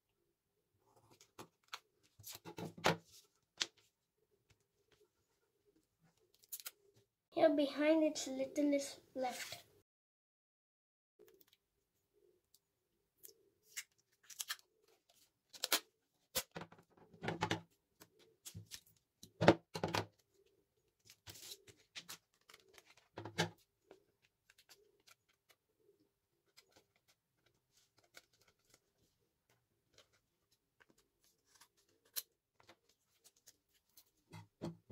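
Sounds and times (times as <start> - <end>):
stiff paper crackling: 20.9 - 23.2.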